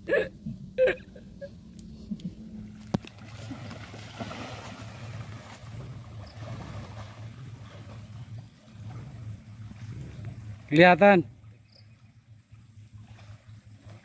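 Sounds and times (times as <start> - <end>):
low steady hum: 0.0 - 14.0
person swimming splashing water: 2.6 - 10.7, 12.7 - 14.0.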